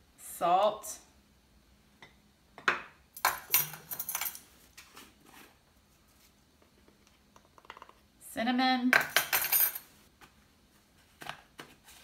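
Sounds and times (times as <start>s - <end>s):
metal spoons jangling: 3.2s - 4.4s.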